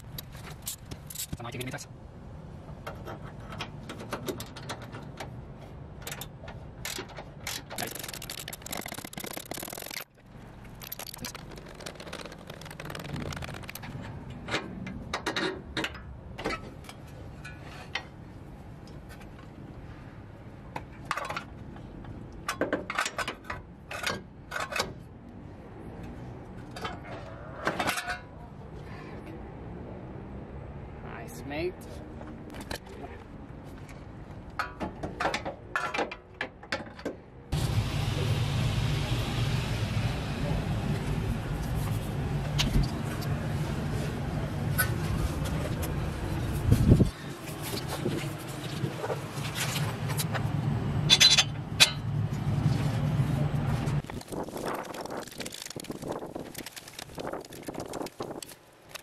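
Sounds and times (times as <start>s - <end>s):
clinks and scrapes of metal parts: 0.0s - 1.7s, 2.7s - 18.2s, 20.8s - 25.1s, 26.6s - 28.5s, 51.1s - 52.1s
ratchet wrench clicking: 7.8s - 10.1s.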